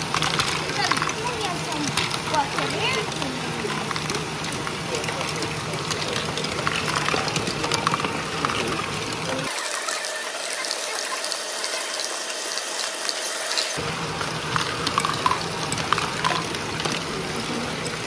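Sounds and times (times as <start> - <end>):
plastic balls clattering: 0.0 - 9.5, 14.4 - 18.0.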